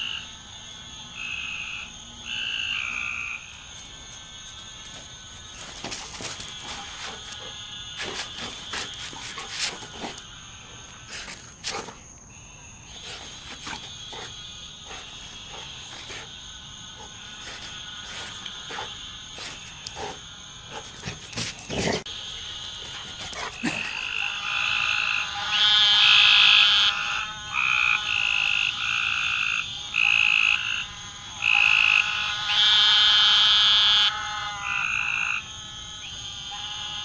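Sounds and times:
frogs calling: 0.0 - 3.7, 12.1 - 37.0.

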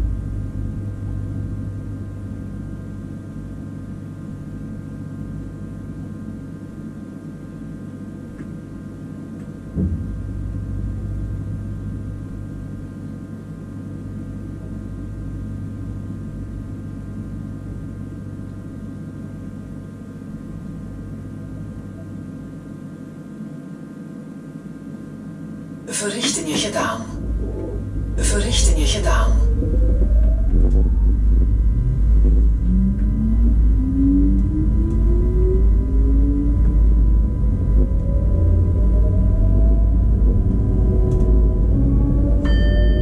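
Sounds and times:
sharp knock: 9.7 - 10.2
electric train humming: 25.9 - 43.0.

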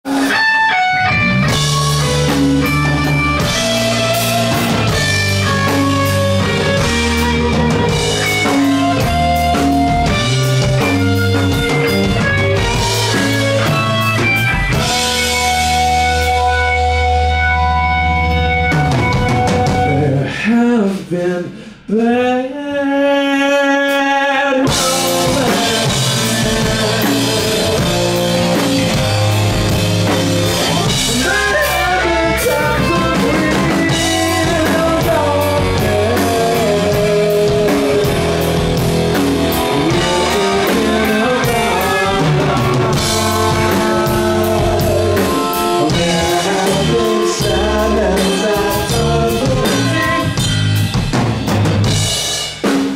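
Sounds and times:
live rock band playing: 0.0 - 21.1, 23.7 - 52.9
drum kit: 0.0 - 21.2, 23.8 - 52.9
man singing into a microphone: 19.8 - 29.0, 30.8 - 38.6, 39.7 - 50.4.

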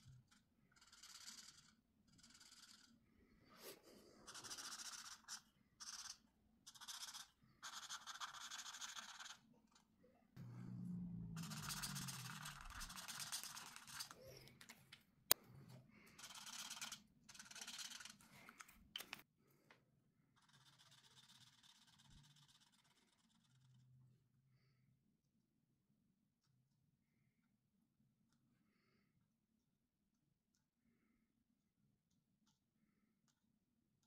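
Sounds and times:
marker scratching on paper: 0.0 - 3.0, 3.6 - 9.9, 11.4 - 14.4, 16.1 - 18.6, 20.3 - 23.8.

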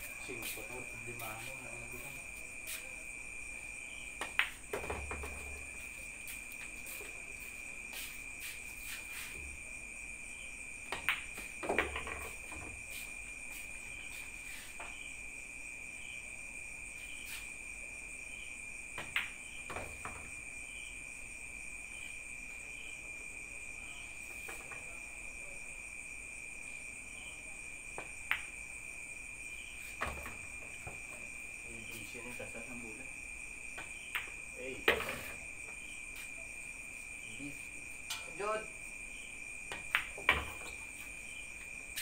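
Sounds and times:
high insect trill: 0.0 - 42.0.

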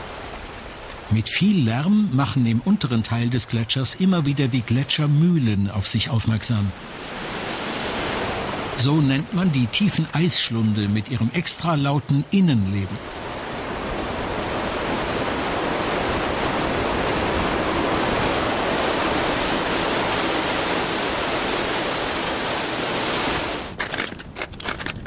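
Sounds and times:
meltwater rushing down ice shaft: 12.6 - 24.9
crampon footsteps on ice: 23.7 - 25.0.

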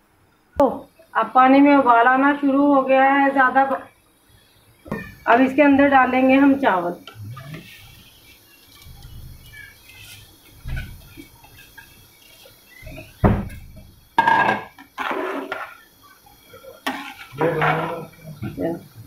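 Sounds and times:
thump and knock on pot: 12.9 - 14.7
metal ladle scraping pot: 14.3 - 15.8, 16.8 - 18.0.

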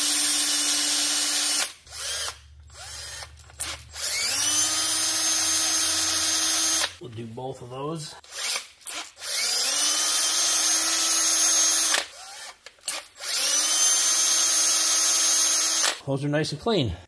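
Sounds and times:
cordless drill whining: 0.0 - 7.0, 8.2 - 16.0.

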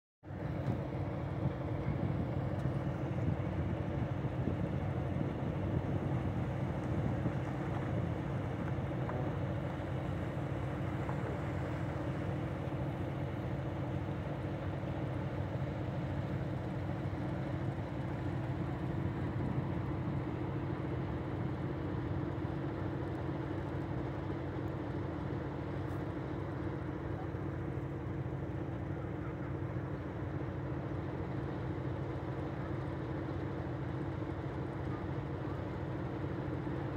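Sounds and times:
diesel locomotive idling: 0.3 - 36.9.

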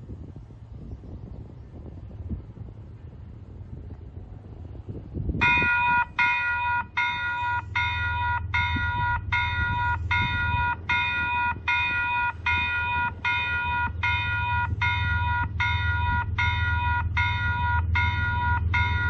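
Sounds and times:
level crossing warning bell: 5.4 - 19.0.

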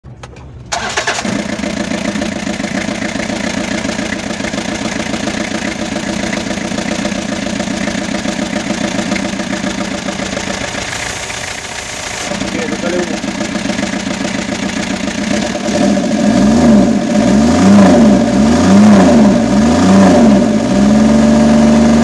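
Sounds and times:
diesel engine idling: 0.5 - 17.5.

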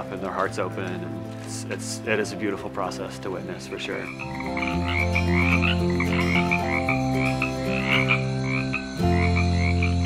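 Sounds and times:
frogs croaking: 3.3 - 10.0.

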